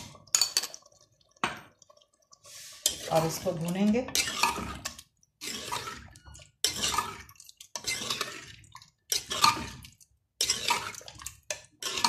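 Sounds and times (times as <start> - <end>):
spoon scraping a clay pot: 2.4 - 12.0.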